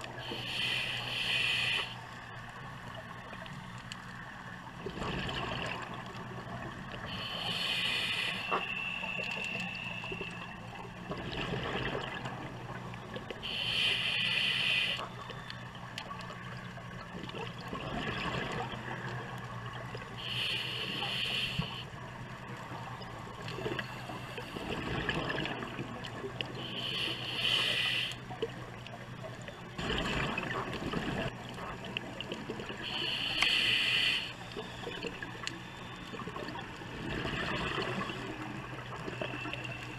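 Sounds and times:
hissing regulator inhale: 0.2s - 2.0s, 7.0s - 10.4s, 13.4s - 15.1s, 20.2s - 21.9s, 26.5s - 28.3s, 32.8s - 34.5s
bubbling gurgling exhale: 4.8s - 8.5s, 17.2s - 18.9s, 23.4s - 28.1s, 29.8s - 35.2s, 36.1s - 39.8s.

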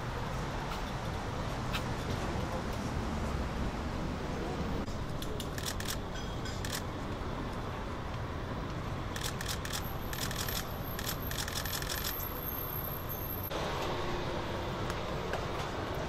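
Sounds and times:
road traffic rumble: 0.0s - 16.0s
sharp clicks: 9.2s - 12.2s.

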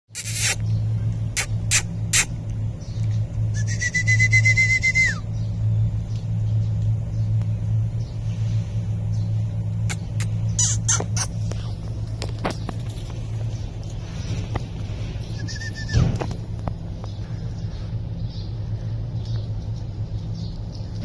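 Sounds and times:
steady low hum: 0.2s - 21.0s
puppy whining: 9.9s - 11.8s
clicks and rustles of debris: 11.4s - 17.3s.

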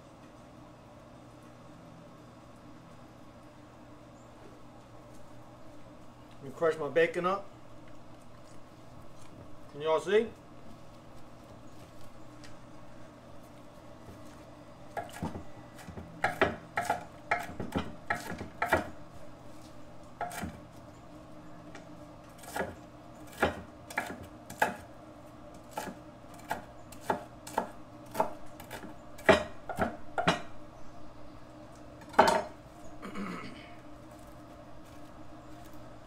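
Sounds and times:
knife chopping on wooden board: 15.0s - 18.9s, 20.2s - 20.6s, 22.4s - 24.9s, 25.7s - 30.5s.

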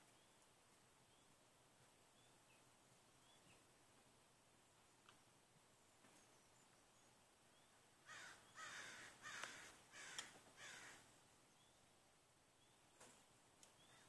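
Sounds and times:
sharp clicks: 9.4s - 10.4s.

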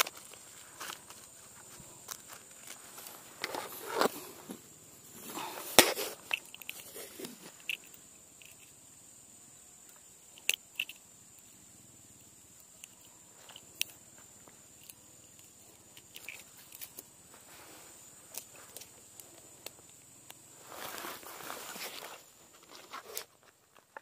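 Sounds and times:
faint high hiss: 0.0s - 24.0s.

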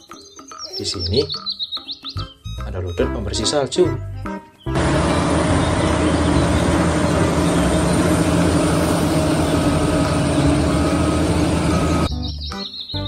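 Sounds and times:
diesel engine running hard: 4.7s - 12.1s.

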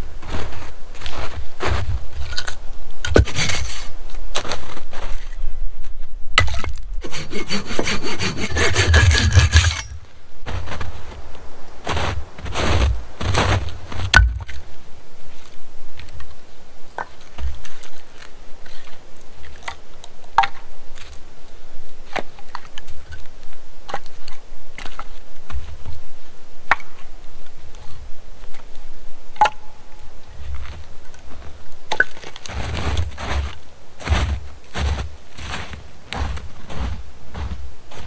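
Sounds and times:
footsteps crunching in snow: 0.0s - 6.2s, 7.0s - 20.0s, 30.0s - 38.0s.

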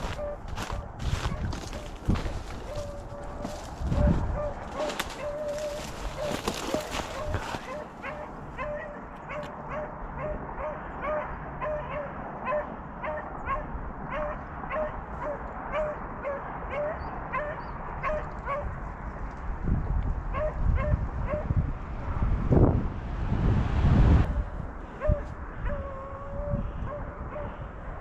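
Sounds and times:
wind rumble on microphone: 0.0s - 11.2s, 12.2s - 28.0s
dogs baying: 0.0s - 18.7s.

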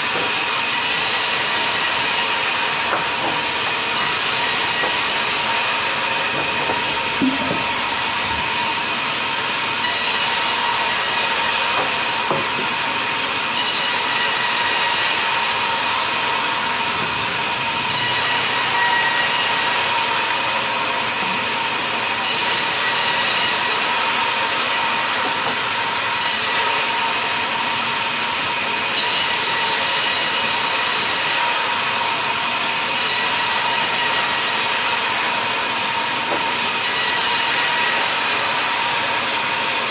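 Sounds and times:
band saw cutting log: 0.0s - 39.9s
wood knocks: 6.3s - 7.8s.

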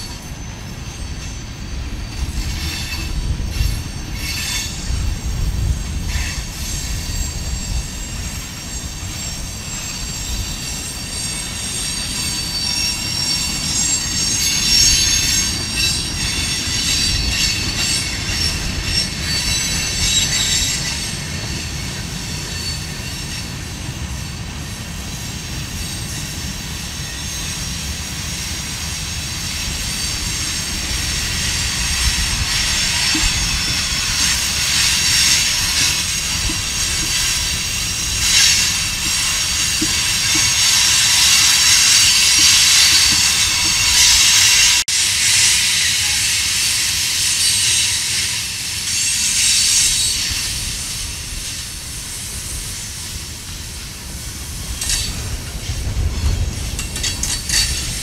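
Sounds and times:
high-pitched wheel squeal: 0.0s - 23.5s, 29.5s - 44.8s
train clacks: 0.0s - 58.0s
train wheels rumbling on rail: 0.0s - 58.0s.

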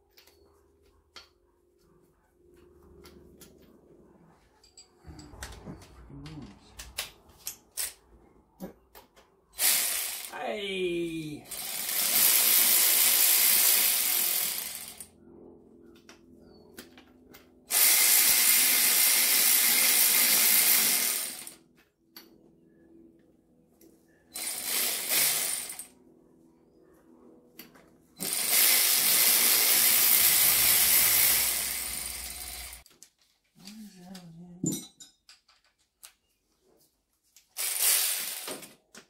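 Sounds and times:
power ratchet running: 9.6s - 10.4s, 11.5s - 15.1s, 17.7s - 21.6s, 24.4s - 25.9s, 28.2s - 32.8s, 37.6s - 38.7s.

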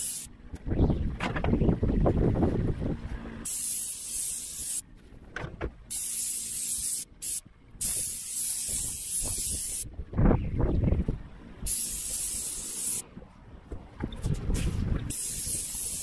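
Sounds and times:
paint sprayer hissing: 0.0s - 0.3s, 3.4s - 4.8s, 5.9s - 9.8s, 11.7s - 13.0s, 15.1s - 16.0s.

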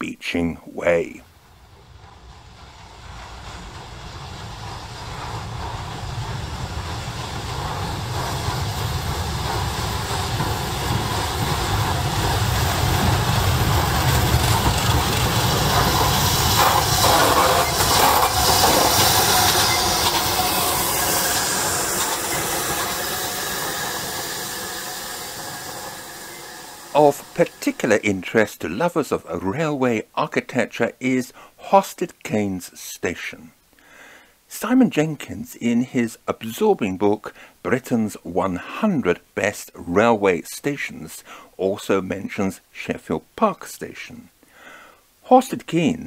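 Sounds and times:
steam train rumble: 0.1s - 32.0s
steam hissing: 0.6s - 29.7s, 35.6s - 42.0s.

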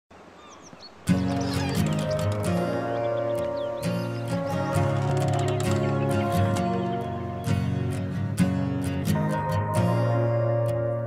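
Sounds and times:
faint outdoor ambience: 0.1s - 11.0s
bird chirps: 0.4s - 7.7s
soft background music: 0.9s - 11.0s.

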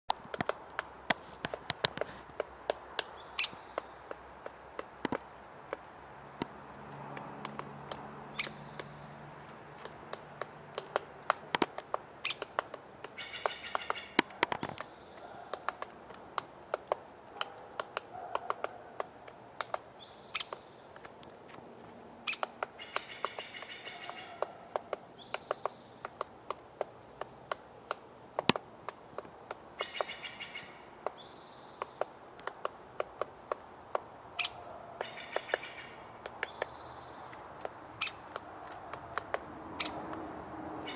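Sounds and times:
woodpecker pecking bark: 0.1s - 40.9s
harsh chattering bird call: 13.1s - 15.2s, 22.3s - 24.5s
faint bird calls: 13.1s - 15.8s, 22.3s - 26.2s, 29.8s - 32.0s, 34.4s - 38.8s.

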